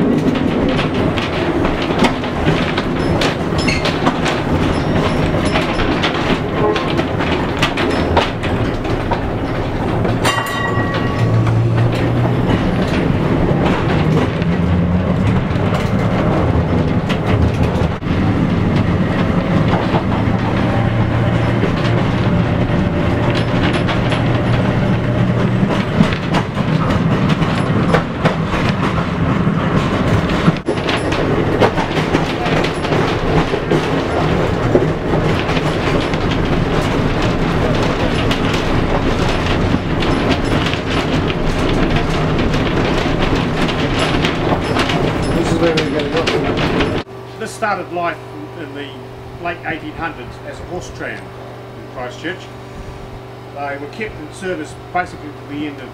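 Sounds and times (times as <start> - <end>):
tram motor hum: 0.0 - 55.9
wheels clicking over rail joints: 0.0 - 55.9.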